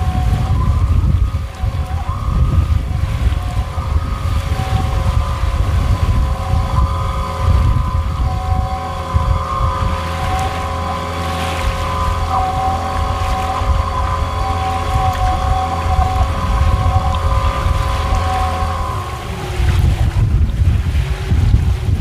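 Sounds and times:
outboard motor whining: 0:00.0 - 0:22.0
wind buffeting microphone: 0:00.0 - 0:22.0.

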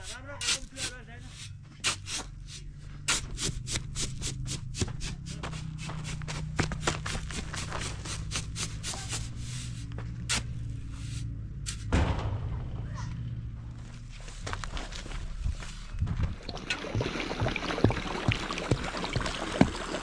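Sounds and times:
shovel scraping into gravel: 0:00.0 - 0:04.1, 0:07.1 - 0:11.9
low hum: 0:09.2 - 0:20.0.

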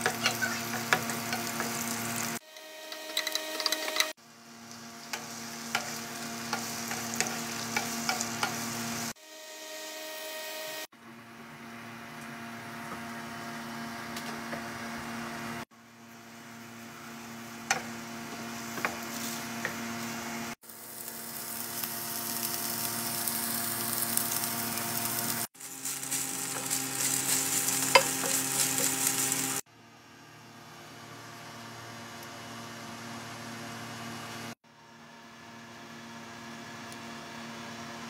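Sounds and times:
food sizzling in a frying pan: 0:00.0 - 0:09.2, 0:16.3 - 0:29.7.

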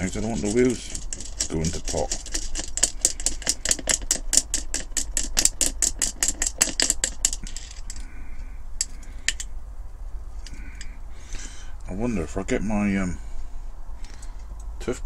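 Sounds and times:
metal toy rattling against glass: 0:00.0 - 0:08.0.

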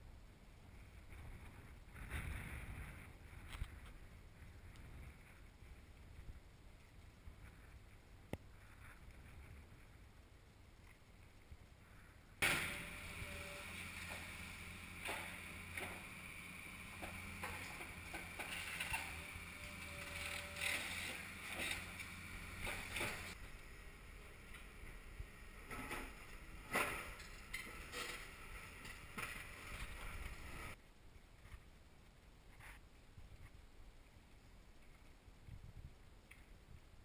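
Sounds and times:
faint wind: 0:00.0 - 0:37.0
excavator engine running: 0:12.4 - 0:30.8.

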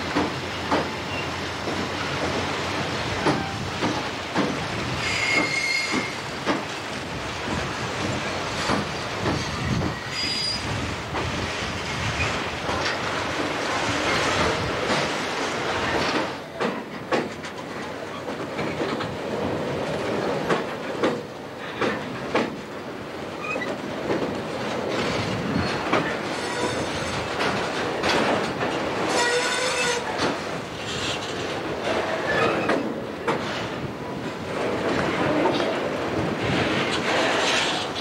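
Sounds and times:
freight train rumble: 0:00.0 - 0:38.0
train wheels clicking over rail joints: 0:00.0 - 0:38.0
high-pitched wheel squeal: 0:05.0 - 0:06.2.

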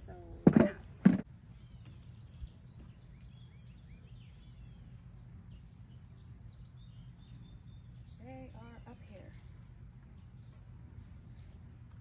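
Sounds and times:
honeybees humming: 0:00.0 - 0:12.0
insects droning: 0:00.0 - 0:12.0
bird chirps: 0:01.5 - 0:11.6.

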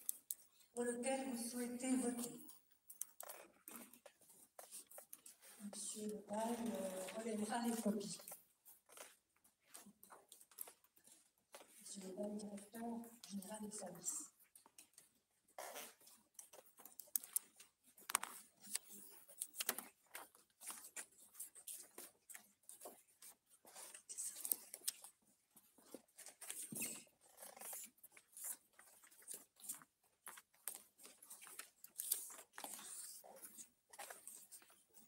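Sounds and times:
paper rustling: 0:27.6 - 0:35.0.

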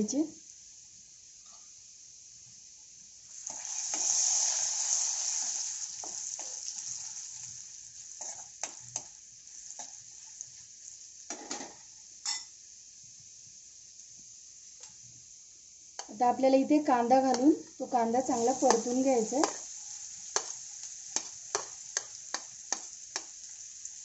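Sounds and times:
spices sizzling in hot oil: 0:00.0 - 0:24.0
spatula clicking against pan: 0:21.2 - 0:23.4.

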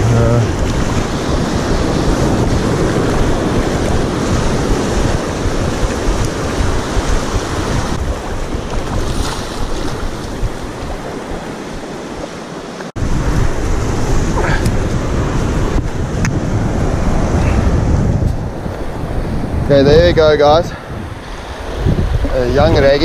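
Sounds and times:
surf washing up on beach: 0:00.0 - 0:23.0
wind buffeting microphone: 0:00.0 - 0:23.0.

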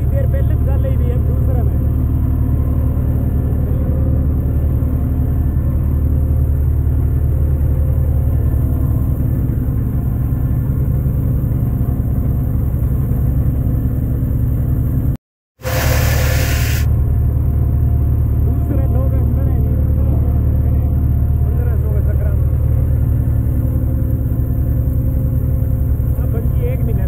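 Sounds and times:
tractor diesel engine running: 0:00.0 - 0:27.0.

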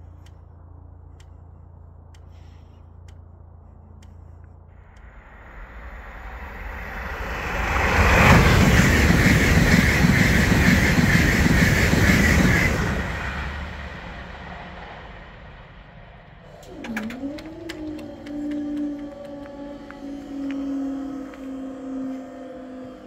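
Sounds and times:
high-speed train passing: 0:04.8 - 0:23.0
low tone dipping and rising: 0:05.0 - 0:11.5
sharp clicks: 0:16.5 - 0:21.5.

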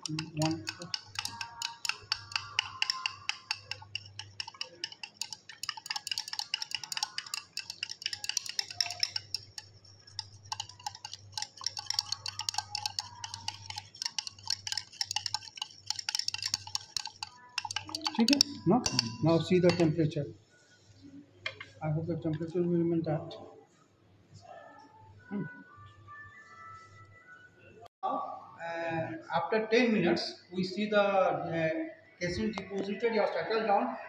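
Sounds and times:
glass rod clinking in beaker: 0:00.0 - 0:20.0.

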